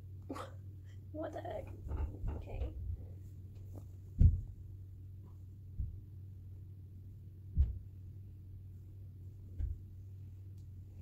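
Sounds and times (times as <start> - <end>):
steady low hum: 0.0 - 11.0
dull thumps of shirt being shaken: 3.6 - 4.6, 7.5 - 7.9.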